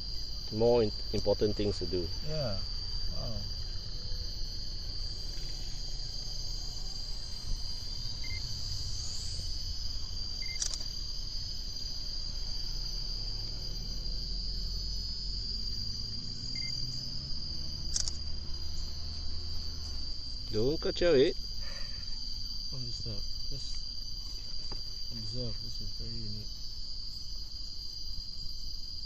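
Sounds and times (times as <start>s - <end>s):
insects chirping: 0.0s - 29.0s
low rumble: 2.9s - 10.4s.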